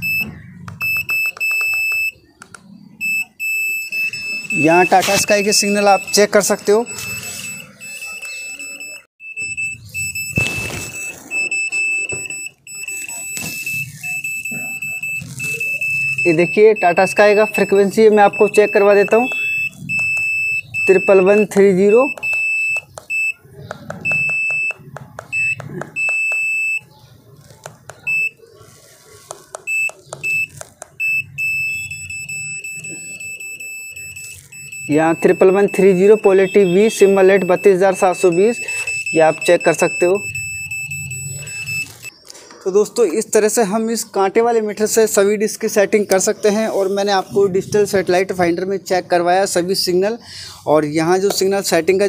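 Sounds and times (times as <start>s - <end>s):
chopped high-pitched beeping: 0.0s - 2.3s, 3.0s - 23.4s, 29.6s - 42.1s.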